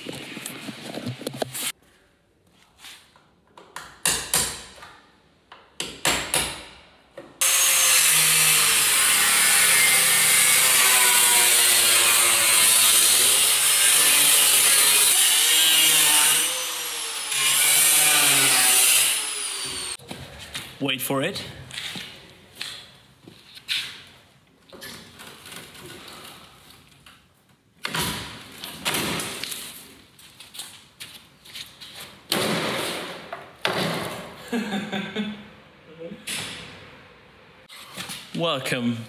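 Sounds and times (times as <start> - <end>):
angle grinder cutting metal: 7.4 - 20.0.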